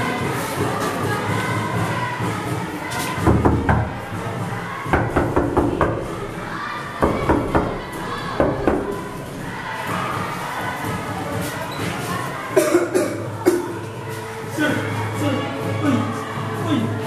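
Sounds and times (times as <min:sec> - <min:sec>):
knuckles knocking on a door: 0:03.2 - 0:04.1, 0:04.9 - 0:06.3, 0:07.0 - 0:09.0.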